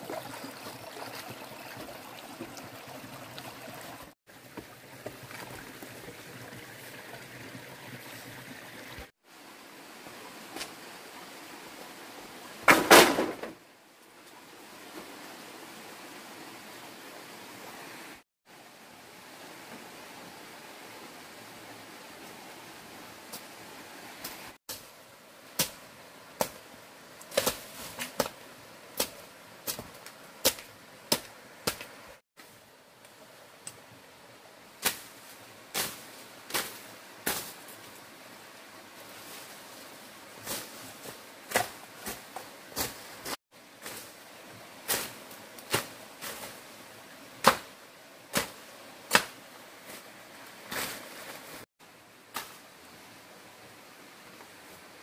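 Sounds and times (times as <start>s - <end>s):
machete chopping brush: 27.3s - 28.4s, 47.4s - 47.7s, 48.3s - 49.4s.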